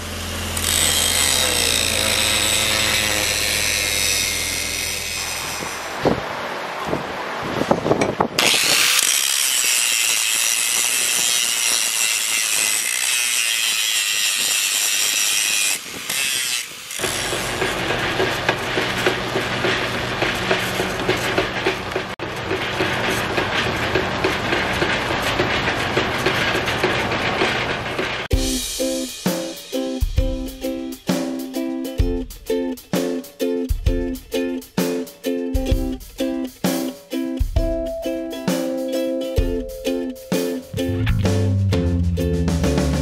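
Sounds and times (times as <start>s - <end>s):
drill press boring steel: 0.0s - 5.9s, 8.4s - 28.5s
angle grinder grinding steel: 0.0s - 6.0s, 8.4s - 29.8s.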